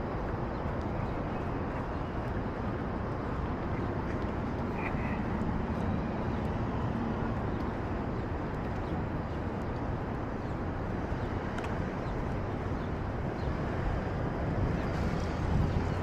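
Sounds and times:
low rumble of traffic: 0:00.0 - 0:16.0.

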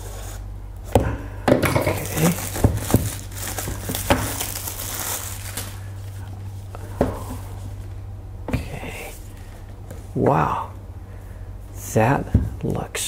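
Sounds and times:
plastic wrap crinkling: 0:01.8 - 0:06.7.

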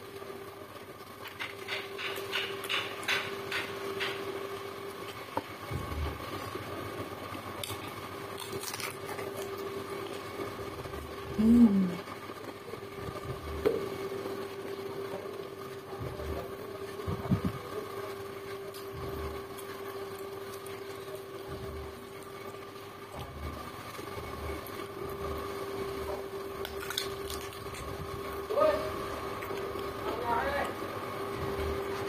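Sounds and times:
electrical hum: 0:00.0 - 0:32.0
person eating and chewing: 0:07.3 - 0:10.5, 0:26.6 - 0:28.2.

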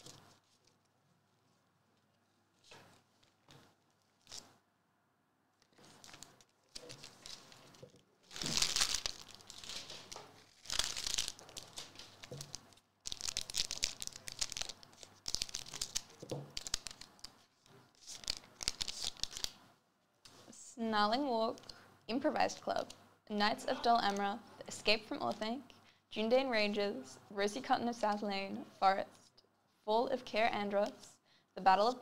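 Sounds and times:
foil wrapper tearing and crinkling: 0:05.8 - 0:17.4, 0:18.0 - 0:19.6.

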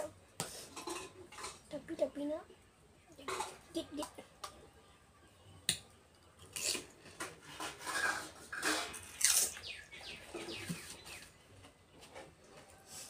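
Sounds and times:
crisp shells crunching and chewing: 0:09.0 - 0:09.6.

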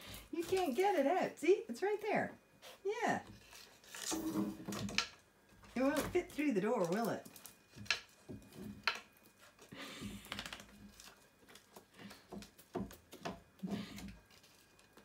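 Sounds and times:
puppy paws on wooden floor: 0:00.3 - 0:03.7.

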